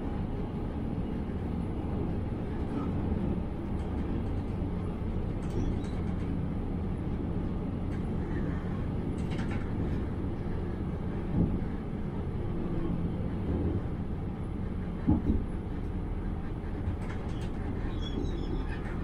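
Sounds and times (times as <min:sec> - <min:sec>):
train low rumble: 0:00.0 - 0:19.0
train knock: 0:15.0 - 0:15.5.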